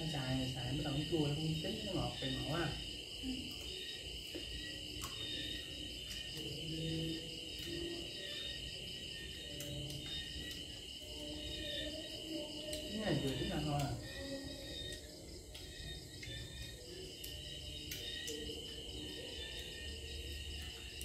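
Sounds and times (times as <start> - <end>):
crickets trilling: 0.0 - 21.0.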